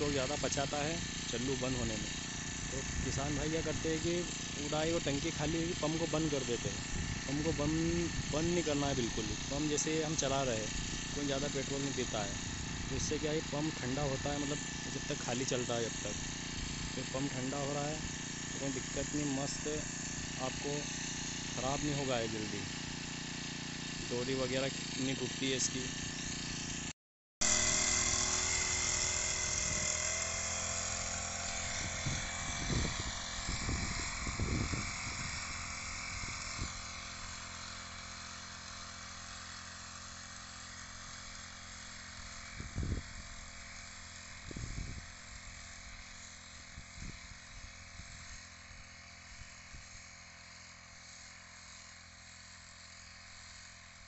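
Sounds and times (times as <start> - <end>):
sprayer engine running: 0.0 - 54.0.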